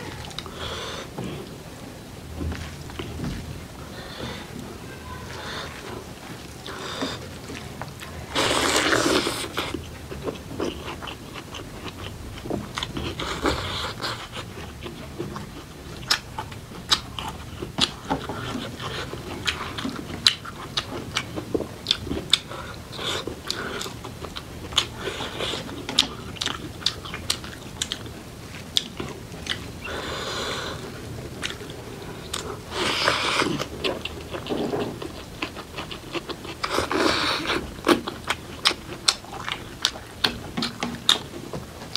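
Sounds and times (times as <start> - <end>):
person chewing food: 0.0 - 41.9.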